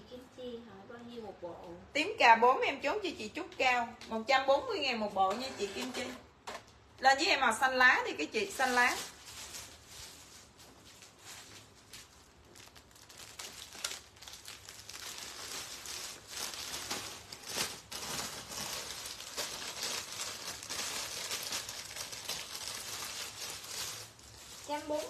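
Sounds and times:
fabric rustling: 8.5 - 25.0.

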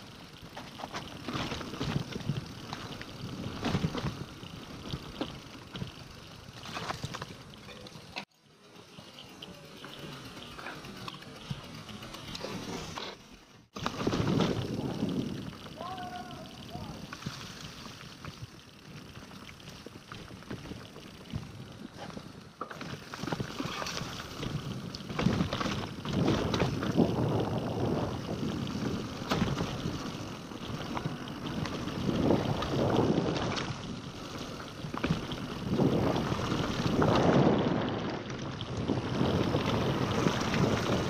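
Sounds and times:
bike clicks and rattles: 0.0 - 41.0
wind rushing over microphone: 13.9 - 16.2, 23.6 - 34.2, 34.9 - 41.0.

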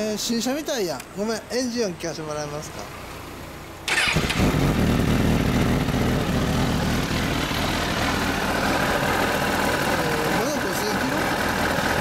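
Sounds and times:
motorcycle engine starting and idling: 2.3 - 12.0.

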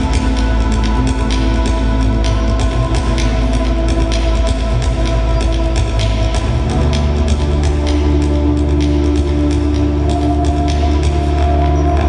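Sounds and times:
ambient electronic music: 0.0 - 12.0.

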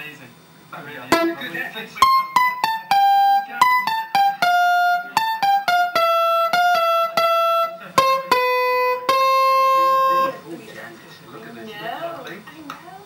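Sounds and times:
electronic keyboard melody: 1.1 - 10.4.

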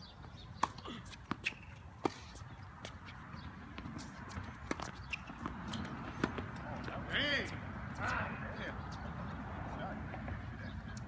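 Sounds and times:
tennis ball bouncing on hard court: 0.6 - 6.9.

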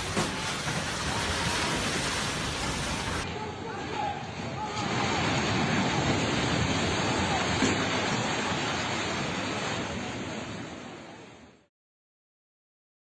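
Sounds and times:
building collapsing rumble: 4.4 - 11.3.

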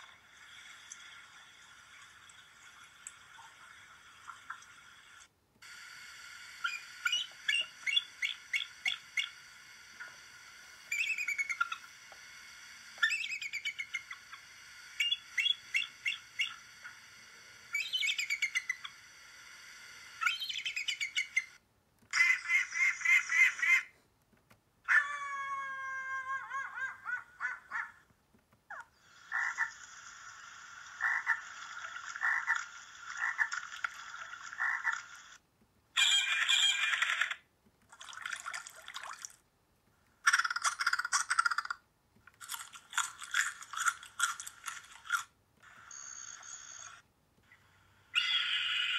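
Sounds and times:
eagle calls through laptop speaker: 24.9 - 28.0, 48.2 - 48.9.

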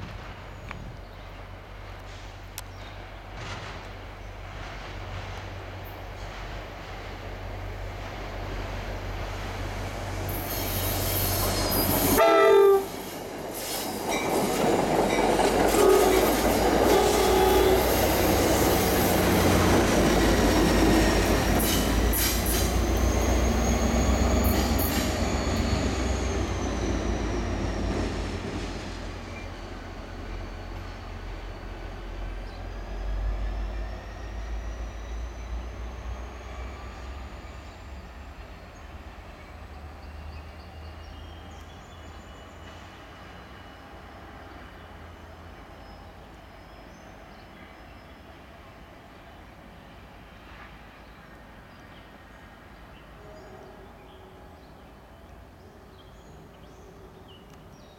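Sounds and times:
high wheel squeal: 10.3 - 13.1, 15.7 - 28.4
locomotive horn blast: 12.0 - 13.0, 15.7 - 18.4
train wheels clattering: 13.0 - 23.4.

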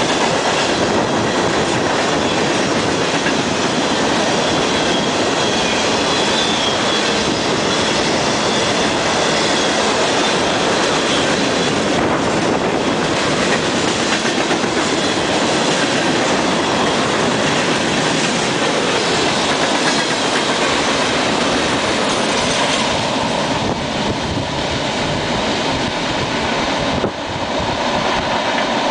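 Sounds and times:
train wheels rumbling and clattering: 0.0 - 28.9
high wheel squeal: 3.8 - 11.8.

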